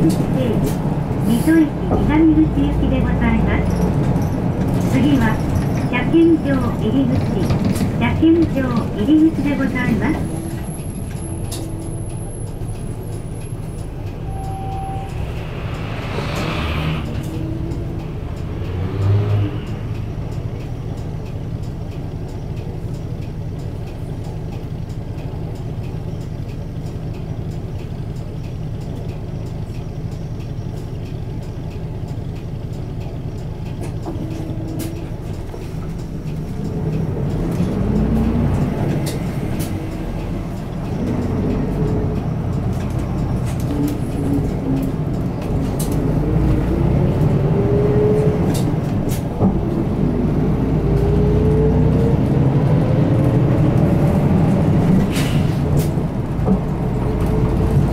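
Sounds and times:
bus diesel engine running: 0.0s - 57.9s
low bump: 12.9s - 18.4s.

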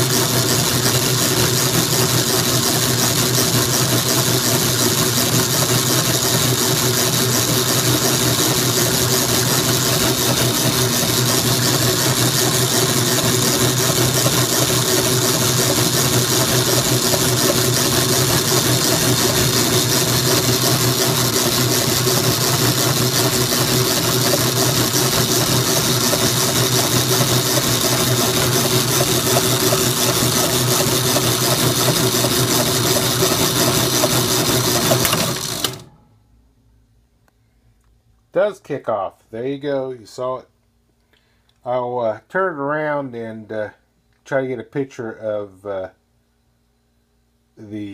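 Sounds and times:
power hacksaw cutting metal: 0.0s - 35.9s.

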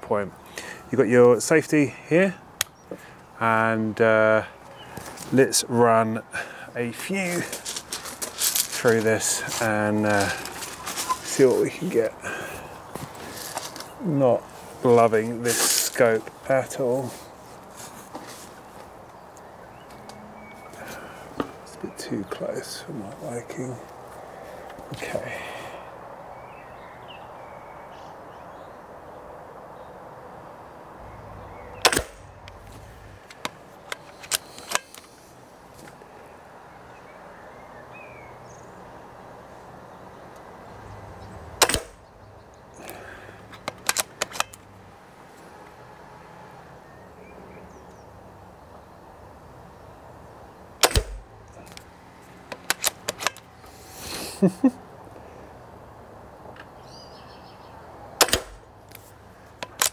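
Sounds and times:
air rifle shot crack: 31.8s - 32.3s, 41.6s - 42.0s, 50.8s - 51.3s, 58.2s - 58.7s
metallic bolt clicks: 31.8s - 32.6s, 33.3s - 35.1s, 41.6s - 42.0s, 43.5s - 44.7s, 50.8s - 51.9s, 52.5s - 53.5s, 58.2s - 59.0s, 59.6s - 59.9s.

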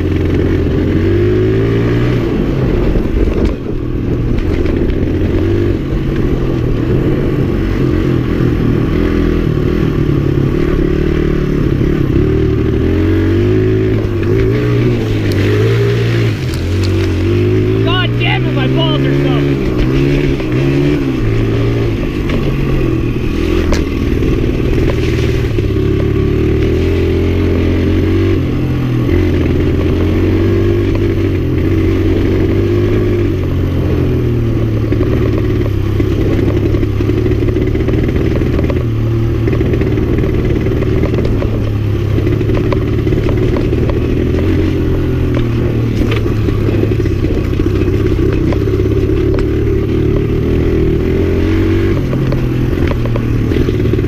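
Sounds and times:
motorcycle engine revving: 0.0s - 54.0s
motorcycle knocks and rattles: 2.9s - 6.7s, 19.6s - 27.1s, 34.2s - 51.0s, 51.7s - 54.0s.

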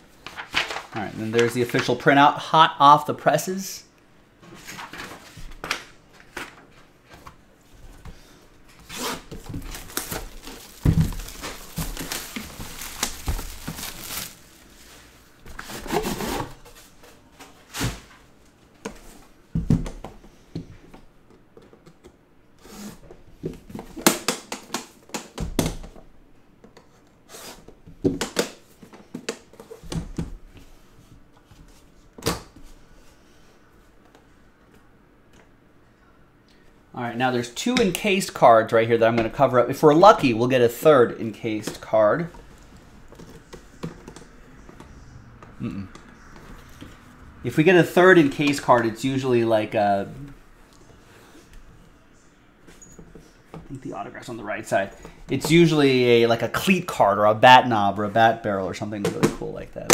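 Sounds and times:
rustling: 8.8s - 17.0s.

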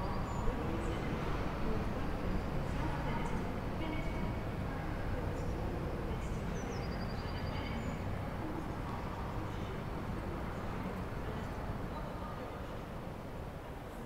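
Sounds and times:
low city background rumble: 0.0s - 14.0s.

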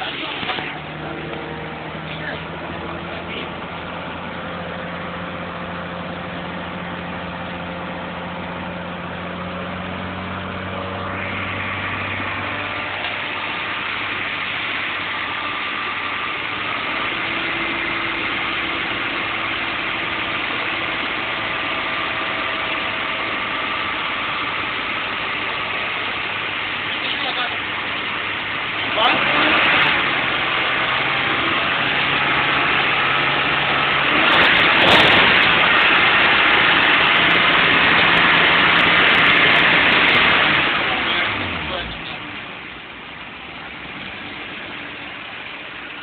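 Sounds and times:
car engine idling: 0.0s - 46.0s.

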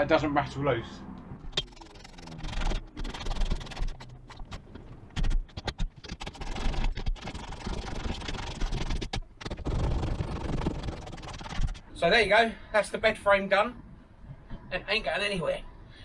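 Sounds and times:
metal scraping: 1.4s - 12.0s.

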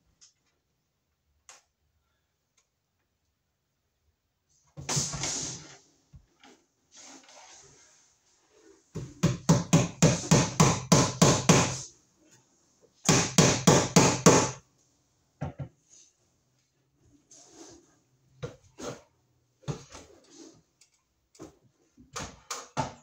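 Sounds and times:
hammer striking wood: 9.2s - 11.8s, 13.1s - 14.6s.

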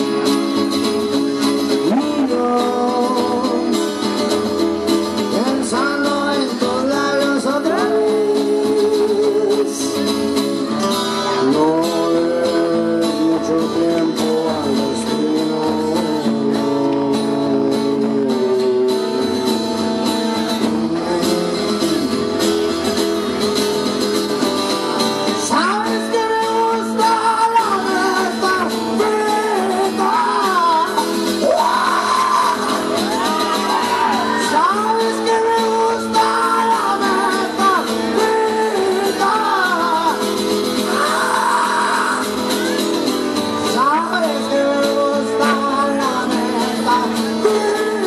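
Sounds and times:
man singing: 0.0s - 10.3s, 11.1s - 22.6s, 25.3s - 48.0s
acoustic guitar strumming: 0.0s - 48.0s.

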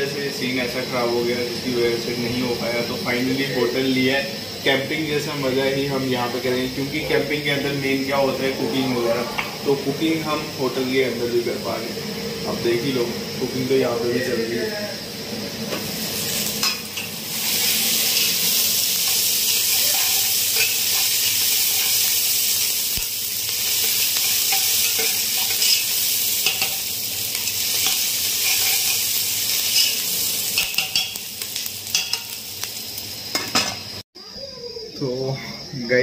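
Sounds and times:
chicken sizzling in a pan: 0.0s - 34.6s
spoon clinking against a pan: 23.8s - 26.9s, 30.6s - 31.2s, 31.9s - 32.4s.

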